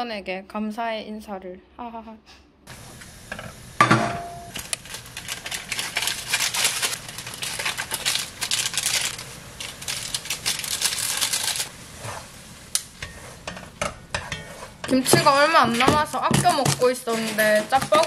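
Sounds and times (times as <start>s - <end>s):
quick clicks and crackles: 4.5s - 11.7s
utensil clanking against pot: 13.0s - 18.0s.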